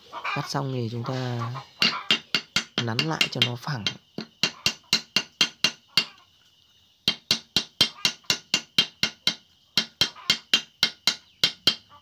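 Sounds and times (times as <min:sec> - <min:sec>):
hammer tapping sheet metal: 0:01.8 - 0:06.1, 0:07.1 - 0:11.8.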